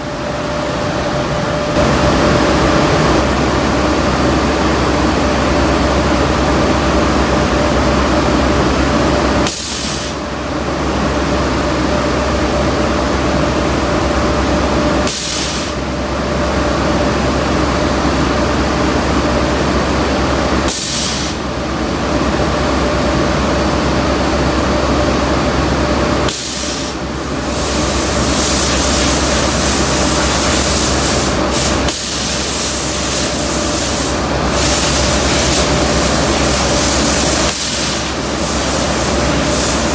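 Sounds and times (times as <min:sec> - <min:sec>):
constant machine hum: 0:00.0 - 0:39.9
sharp bursts of air hiss: 0:09.4 - 0:10.2, 0:15.0 - 0:15.8, 0:20.7 - 0:21.4, 0:26.3 - 0:39.9
spray guns hissing: 0:26.3 - 0:39.9.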